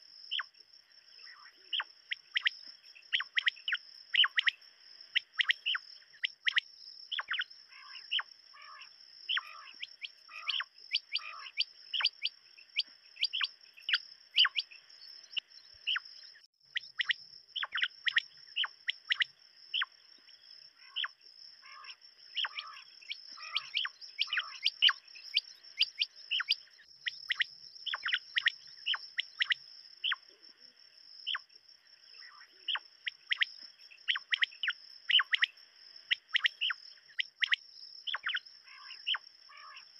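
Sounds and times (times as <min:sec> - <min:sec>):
quail calling: 0:01.3 - 0:04.6, 0:05.2 - 0:14.7, 0:20.8 - 0:30.2, 0:34.1 - 0:35.5, 0:36.1 - 0:39.9.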